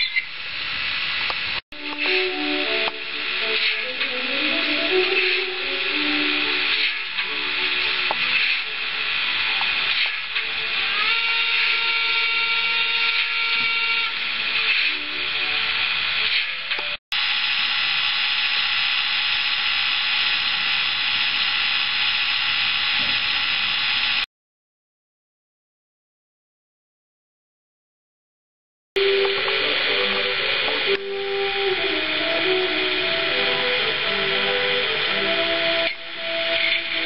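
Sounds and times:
steam hissing: 0.0s - 24.3s, 29.0s - 37.0s
locomotive whistle tone: 10.8s - 15.2s.

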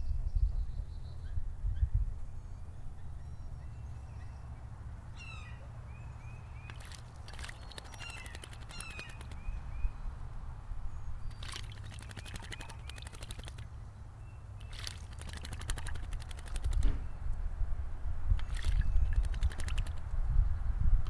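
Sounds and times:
faint bird chirps: 0.0s - 10.1s, 10.8s - 15.8s
bird splashing in water: 6.6s - 9.6s, 11.3s - 13.7s, 14.6s - 17.0s, 18.4s - 20.1s.

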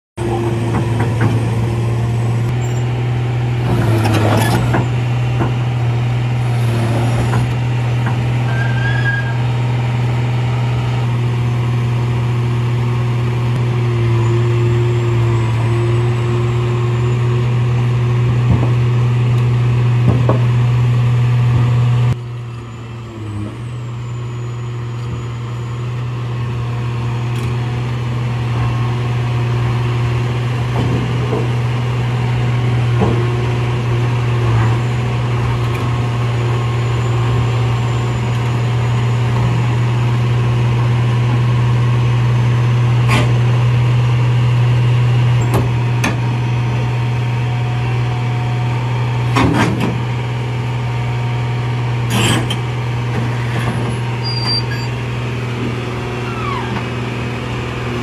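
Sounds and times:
excavator diesel engine droning: 0.2s - 58.0s.

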